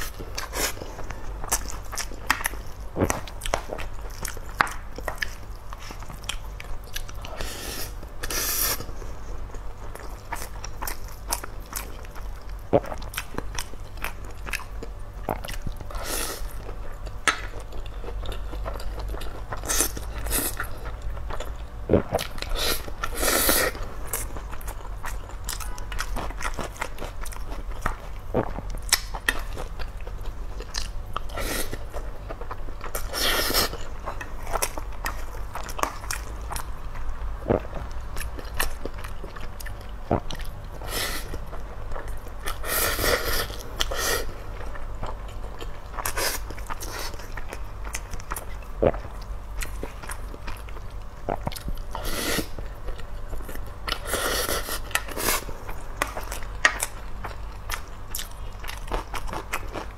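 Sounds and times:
chewing and wet mouth sounds: 0.0 - 59.9.

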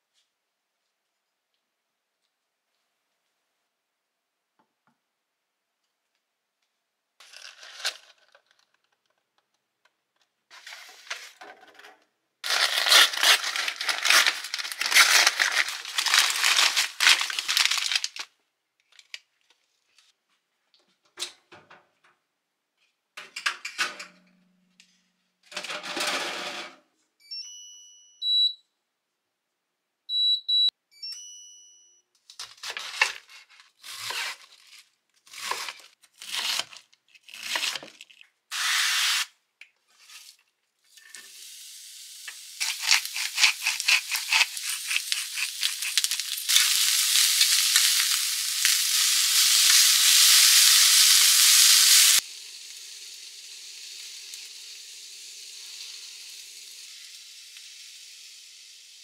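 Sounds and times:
crinkling tearing handling noise: 12.4 - 19.6, 32.3 - 38.3, 42.6 - 48.8
short electronic beeps: 27.2 - 28.7, 30.1 - 32.0.

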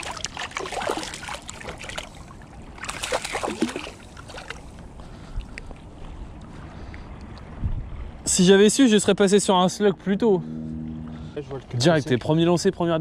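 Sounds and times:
fish splashing at water surface: 0.0 - 4.8
gentle lapping water: 0.0 - 11.4.

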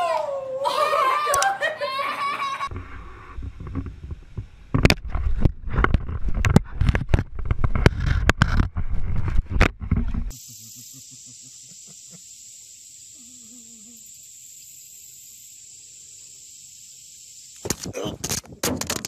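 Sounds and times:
child crying: 0.0 - 2.7
steady hiss: 10.3 - 18.5.

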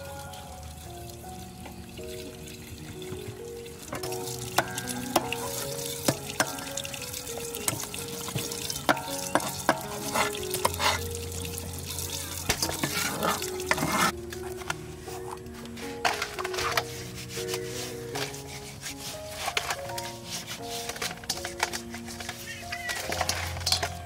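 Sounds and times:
soft background music: 0.0 - 24.0
water splashing and swishing: 0.0 - 24.0
clicks and knocks of handling: 20.8 - 24.0.

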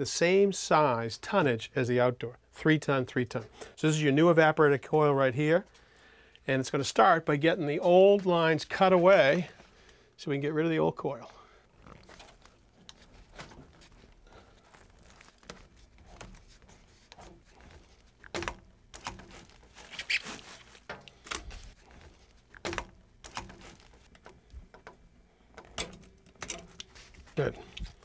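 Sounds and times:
tubing cutter scraping copper pipe: 11.7 - 24.8.

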